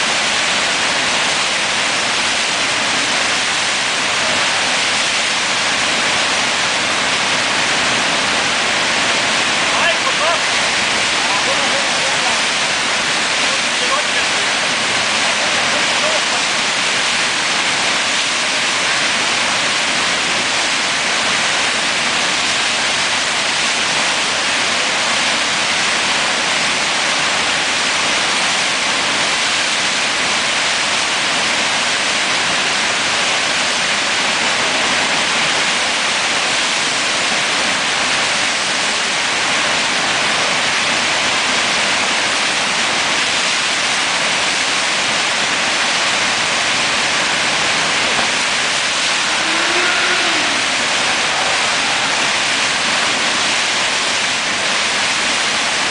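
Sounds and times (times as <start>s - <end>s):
churning whitewater rushing: 0.0s - 55.9s.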